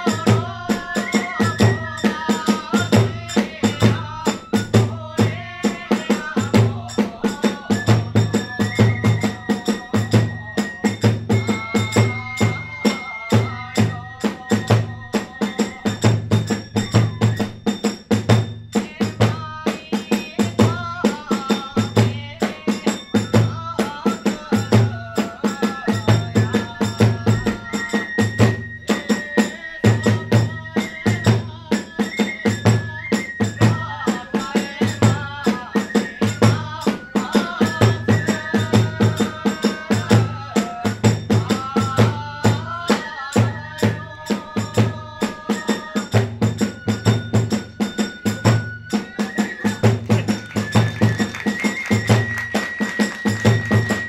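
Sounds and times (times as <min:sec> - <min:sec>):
bamboo flute melody: 0:00.0 - 0:18.4, 0:23.3 - 0:54.0
large drum steady beat: 0:00.0 - 0:54.0
small hand cymbals clashing: 0:45.4 - 0:54.0.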